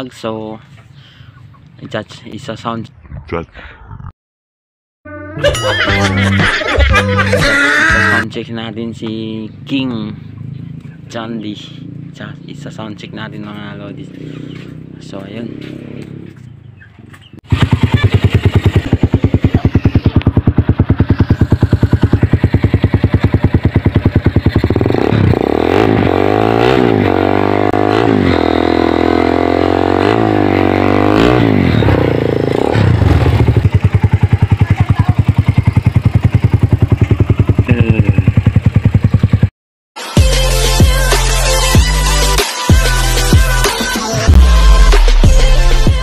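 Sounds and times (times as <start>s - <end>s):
motorcycle engine revving: 9.6s - 39.5s.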